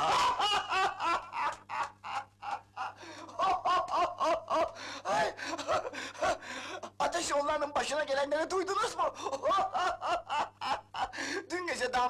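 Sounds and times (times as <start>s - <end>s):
man laughing heartily: 0.0s - 7.0s, 9.0s - 11.4s.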